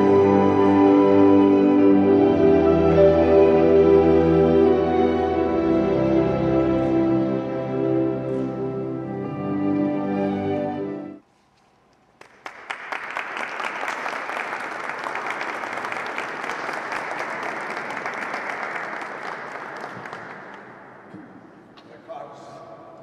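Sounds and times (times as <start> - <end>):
slow sad music: 0.0 - 11.2
audience applauding: 12.2 - 21.0.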